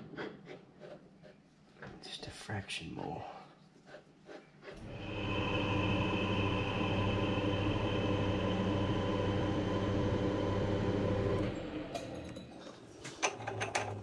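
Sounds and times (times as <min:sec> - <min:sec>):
metal lathe humming: 0:04.8 - 0:12.2.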